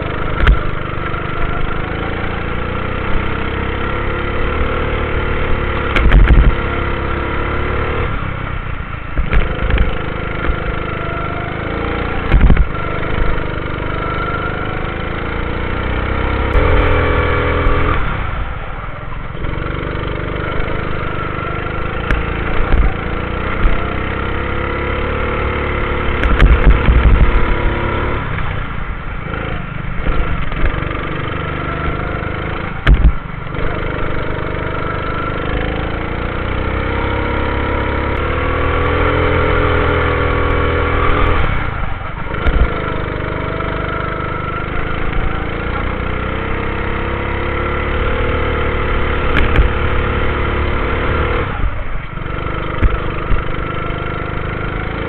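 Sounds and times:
go-kart engine revving: 0.0 - 55.0
loud thumps: 5.8 - 6.7, 9.2 - 10.8, 12.2 - 13.4, 21.8 - 24.1, 26.1 - 27.8, 32.8 - 33.6, 42.3 - 42.9, 49.1 - 50.2, 52.7 - 53.6.

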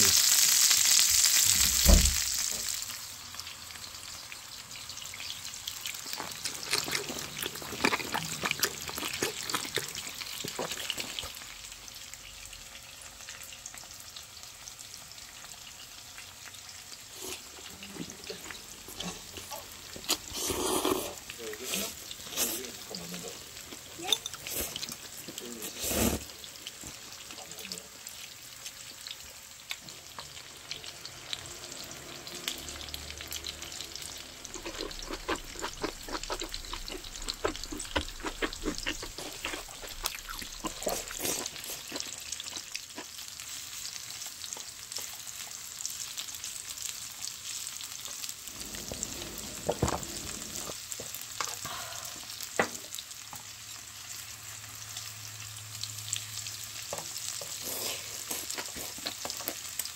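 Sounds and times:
meat sizzling on a grill plate: 0.0 - 59.9.

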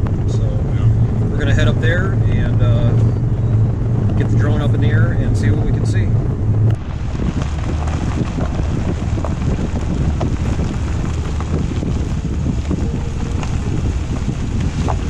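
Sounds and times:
tyres rumbling on gravel: 0.0 - 15.0
wind buffeting microphone: 0.0 - 15.0
stones ticking: 6.6 - 15.0.

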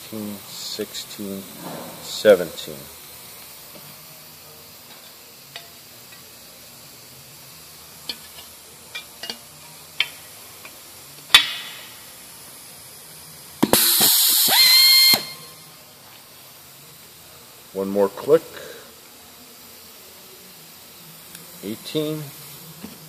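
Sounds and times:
pneumatic rivet tool whining: 13.6 - 15.5.

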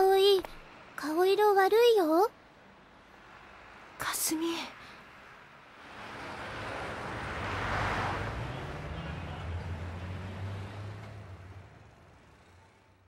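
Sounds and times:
vehicle passing by: 2.6 - 13.0.

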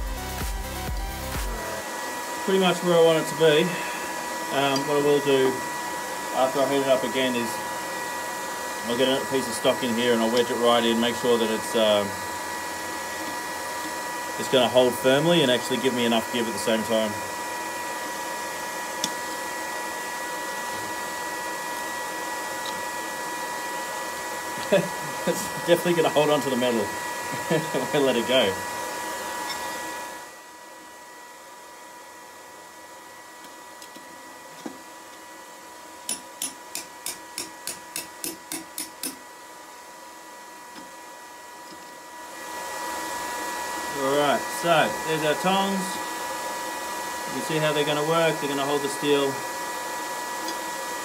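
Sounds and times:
electric blower fan whining: 0.0 - 51.0
hammer striking metal on anvil: 36.1 - 39.2.

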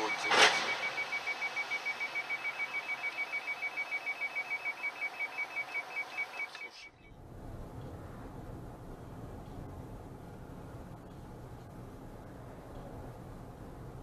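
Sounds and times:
rapid high electronic beeping: 0.0 - 6.6.

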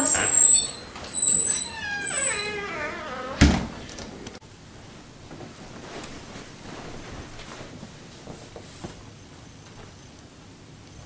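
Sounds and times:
door shutting thud: 0.0 - 4.1
low room noise: 0.0 - 11.0.

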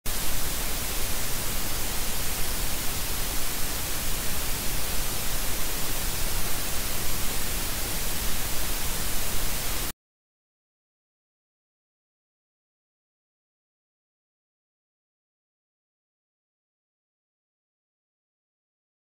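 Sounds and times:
white noise static: 0.1 - 9.9.

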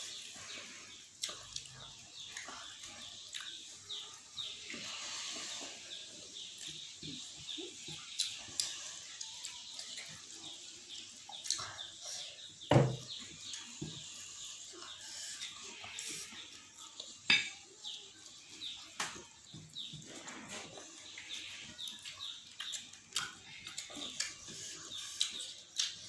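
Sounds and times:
soft chewing: 0.0 - 26.0.

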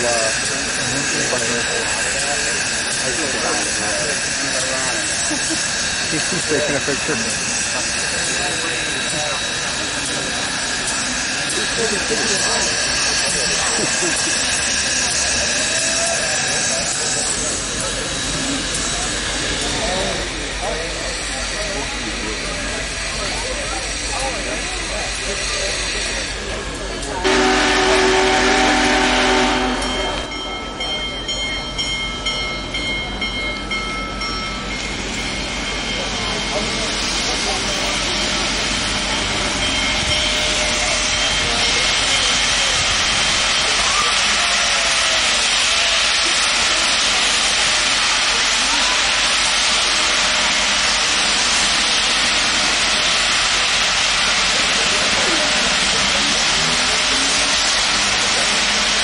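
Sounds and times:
rush of steam: 0.0 - 59.0
steam whistle chord: 27.2 - 30.2
bell ringing steadily: 29.8 - 45.4.

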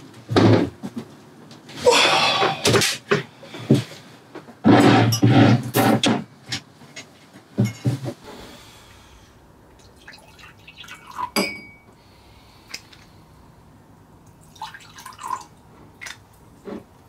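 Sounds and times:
liquor pouring into glass: 9.8 - 11.4, 14.4 - 15.6
glass clinking on glass: 11.3 - 12.0.

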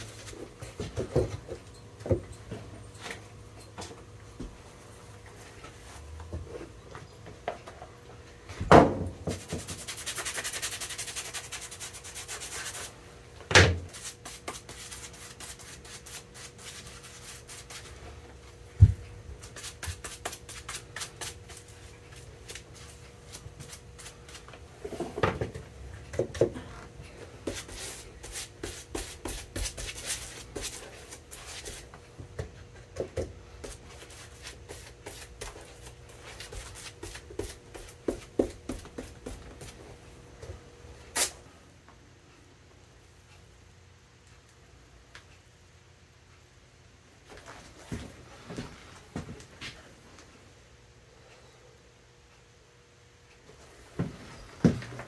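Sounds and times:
faint steady hum: 0.0 - 55.0
knocks on a workbench: 8.6 - 9.4.

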